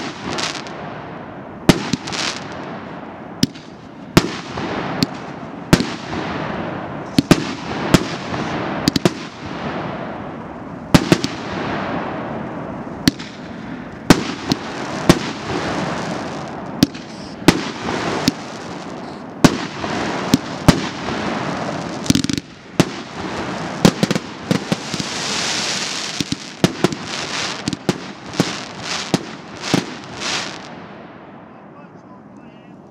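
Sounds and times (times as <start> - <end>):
fireworks crackling hiss: 0.0 - 0.9, 1.7 - 2.8, 3.4 - 30.8
firework bangs: 0.0 - 31.5.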